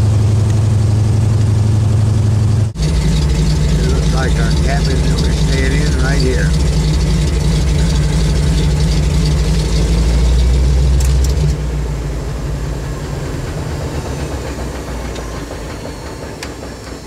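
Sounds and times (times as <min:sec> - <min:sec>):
plane piston engine running: 0:02.4 - 0:17.0.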